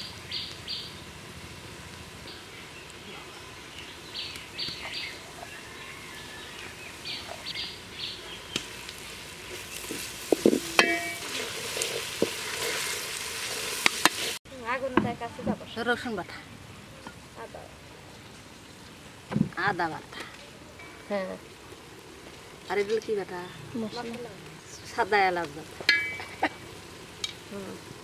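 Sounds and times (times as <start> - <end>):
birds chirping: 0.0 - 1.2, 2.0 - 11.2, 19.7 - 27.9
onions sizzling in oil: 0.0 - 28.0
spatula knocking and scraping pot: 9.5 - 12.9.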